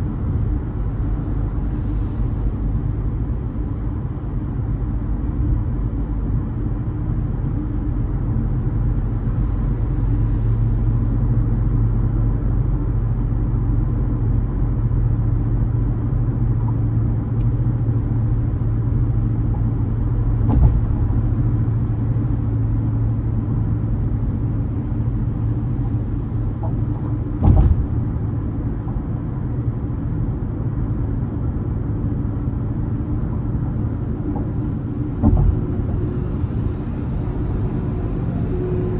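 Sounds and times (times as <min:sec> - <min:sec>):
car engine and road rumble: 0:00.0 - 0:38.9
short thumps: 0:20.4 - 0:21.2, 0:27.4 - 0:28.1, 0:35.2 - 0:35.8.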